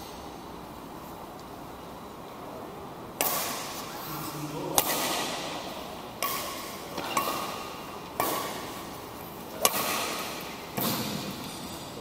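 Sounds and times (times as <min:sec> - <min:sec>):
rackets hitting shuttlecock: 0:03.2 - 0:03.9, 0:04.7 - 0:11.9.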